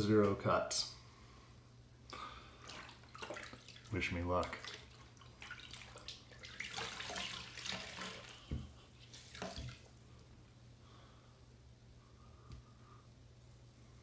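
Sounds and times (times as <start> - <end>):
water splashing into sink: 2.6 - 10.0.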